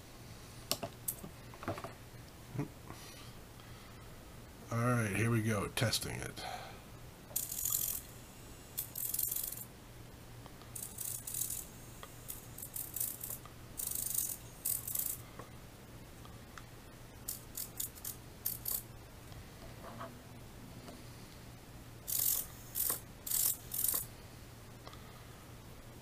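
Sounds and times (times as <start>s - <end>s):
servo whirring: 22.1s - 24.1s.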